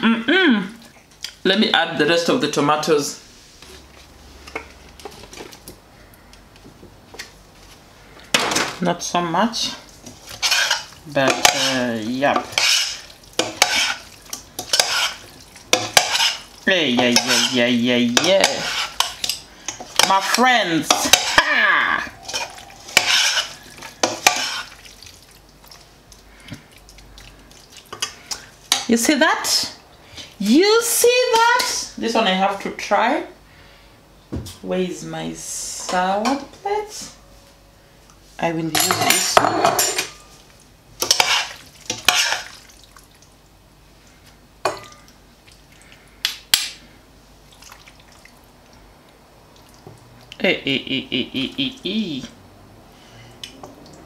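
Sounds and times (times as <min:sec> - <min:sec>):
salad mixing wet sounds: 0:00.6 - 0:01.4, 0:09.6 - 0:28.9, 0:40.2 - 0:50.4, 0:53.0 - 0:54.0.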